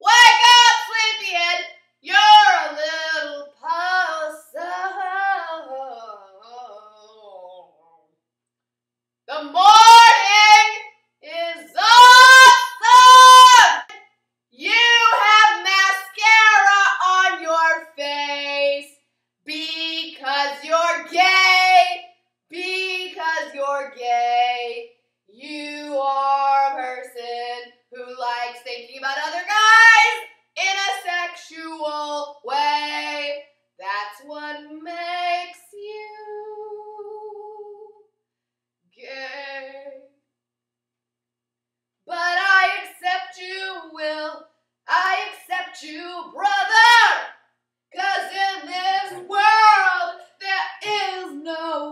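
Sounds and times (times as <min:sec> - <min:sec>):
woman singing wordless calls: 0:00.0 - 0:07.8, 0:09.3 - 0:13.8, 0:14.6 - 0:18.9, 0:19.5 - 0:22.0, 0:48.0 - 0:51.9.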